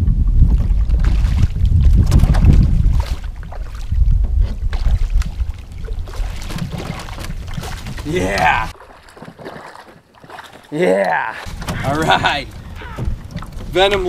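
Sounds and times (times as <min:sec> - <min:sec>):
wind rumbling on microphone: 0:00.0 - 0:08.8, 0:11.4 - 0:14.0
water splashing: 0:00.4 - 0:14.0.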